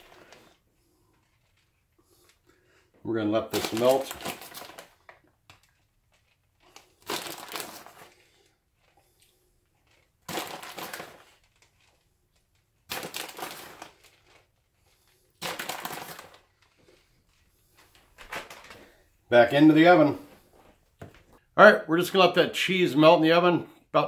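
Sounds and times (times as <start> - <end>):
plastic bag crinkling: 0.0 - 1.9, 3.4 - 9.0, 9.7 - 19.0.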